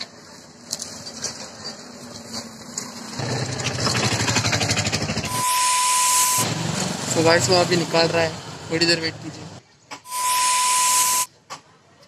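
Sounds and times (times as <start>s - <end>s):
small engine puttering: 0.7s - 5.4s
steady high beep: 5.3s - 6.5s, 10.1s - 11.3s.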